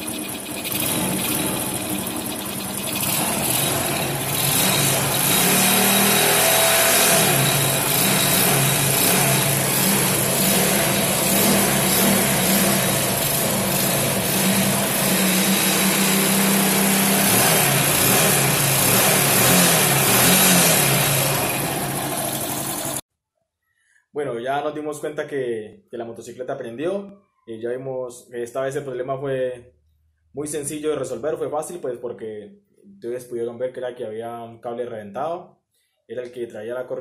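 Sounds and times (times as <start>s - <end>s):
motorcycle engine revving: 0.0s - 23.0s.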